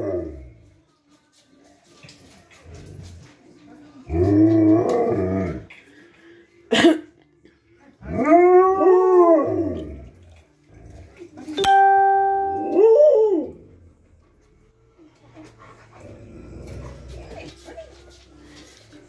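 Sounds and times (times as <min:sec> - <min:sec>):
dog howling: 0:12.8 - 0:13.7.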